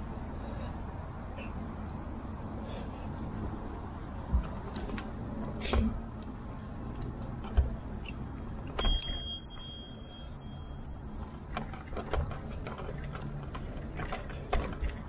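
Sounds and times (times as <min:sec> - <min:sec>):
bike tyre road noise: 0:00.0 - 0:15.0
high ringing tone: 0:08.8 - 0:11.2.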